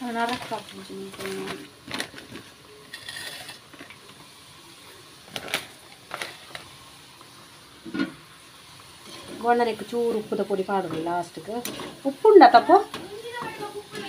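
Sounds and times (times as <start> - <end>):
newspaper crinkling and rustling: 0.0 - 2.6.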